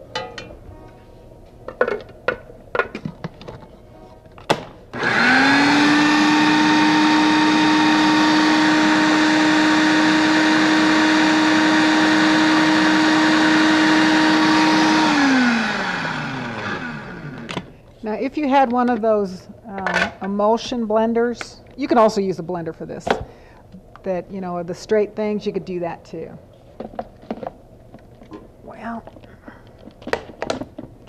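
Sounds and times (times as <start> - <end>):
food processor motor whining: 4.9 - 17.7.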